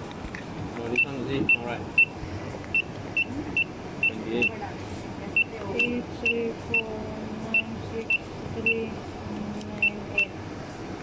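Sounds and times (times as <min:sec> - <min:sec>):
pin pad beeps: 0:09.8 - 0:10.3.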